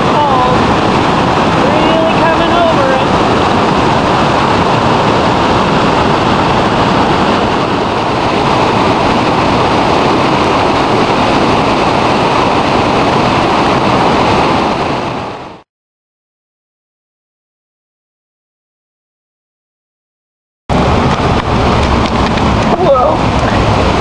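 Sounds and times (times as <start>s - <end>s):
creek rushing over rocks: 0.0s - 15.6s, 20.7s - 24.0s.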